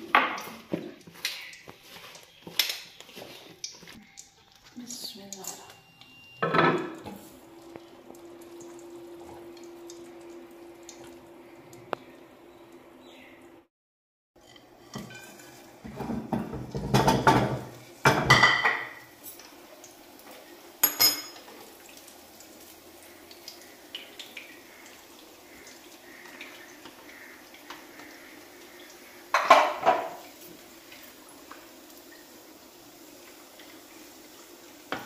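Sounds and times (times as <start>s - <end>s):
kitchen clatter: 0.0s - 4.7s, 5.3s - 7.3s, 14.4s - 19.6s, 20.2s - 21.8s, 29.3s - 31.2s
pan and utensil noise: 0.0s - 10.3s, 14.4s - 35.0s.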